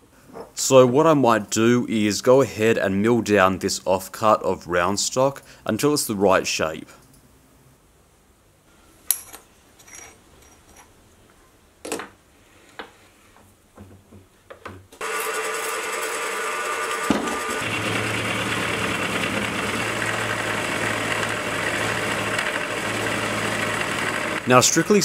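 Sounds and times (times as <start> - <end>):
milling machine cutting steel: 15.0 - 25.0.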